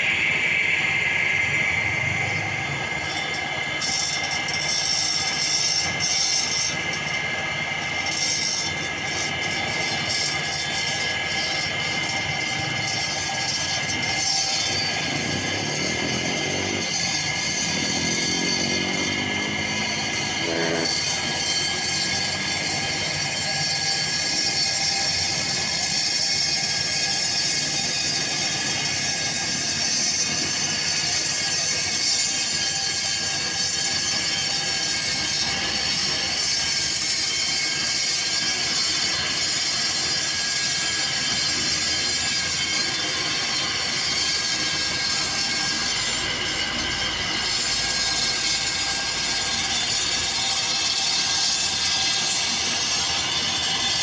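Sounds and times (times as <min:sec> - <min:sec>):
concrete saw cutting: 0:00.0 - 0:54.0.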